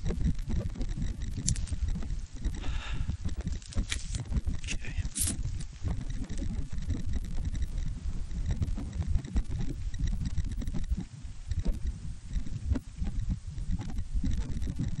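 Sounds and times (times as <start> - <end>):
wind buffeting the microphone: 0.0 - 15.0
camera handling clicks: 1.4 - 1.8, 3.6 - 5.7.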